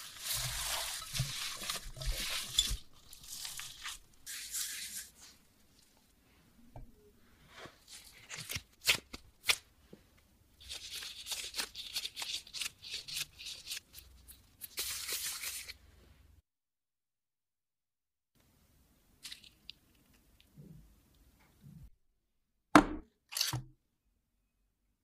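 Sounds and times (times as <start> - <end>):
plastic gloves crinkling: 0.0 - 6.2, 10.6 - 15.8.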